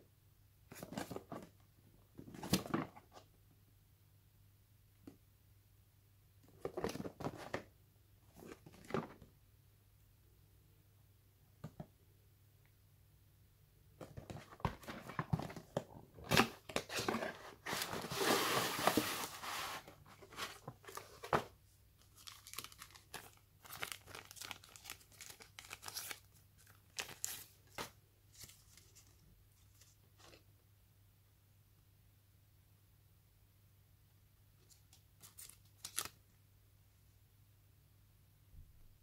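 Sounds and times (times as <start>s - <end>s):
packaging rustling and crinkling: 14.2s - 27.8s.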